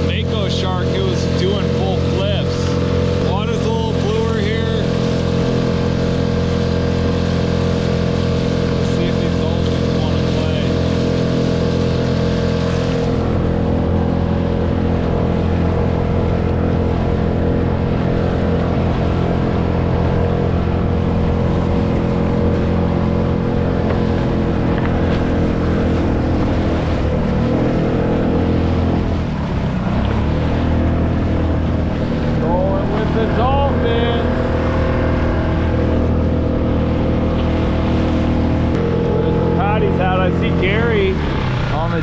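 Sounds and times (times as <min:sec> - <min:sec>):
small outboard motor running: 0:00.0 - 0:42.0
water splashing along hull: 0:00.0 - 0:42.0.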